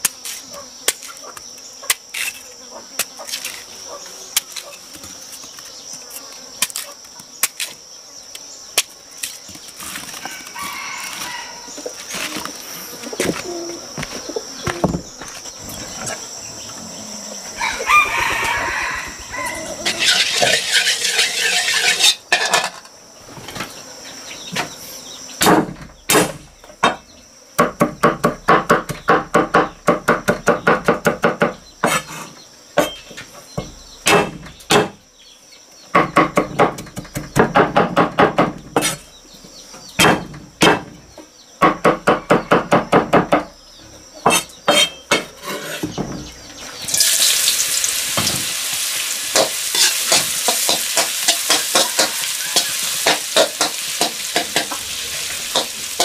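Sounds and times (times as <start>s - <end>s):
high insect drone: 0.0s - 56.0s
rooster crowing: 10.1s - 11.9s, 17.3s - 21.2s, 51.5s - 53.1s
chickens clucking: 15.7s - 22.0s, 49.1s - 56.0s
cleaver chopping on wooden block: 34.0s - 35.0s, 40.0s - 40.9s.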